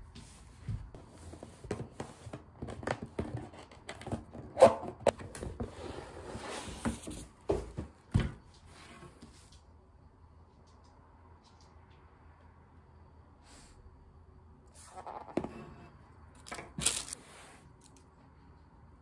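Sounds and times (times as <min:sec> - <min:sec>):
ribbon and cardboard rustling: 0:16.7 - 0:17.2.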